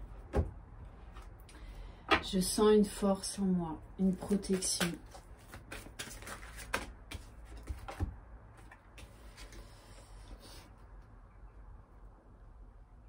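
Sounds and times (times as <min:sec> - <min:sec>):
cards shuffled on wooden table: 0:04.2 - 0:09.7.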